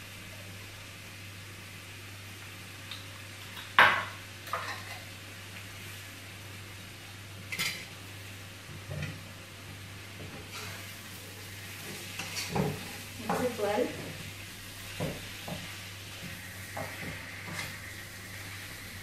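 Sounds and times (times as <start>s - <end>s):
spoon scraping a wok: 4.5s - 5.1s, 16.8s - 17.9s.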